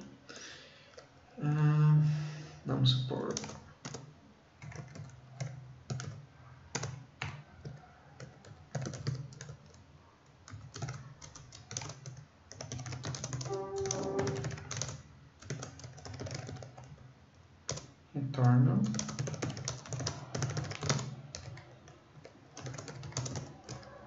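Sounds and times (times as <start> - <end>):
computer keyboard typing: 3.2 - 17.1, 17.7 - 17.9, 18.8 - 24.0
brief pitched tone: 13.5 - 14.5.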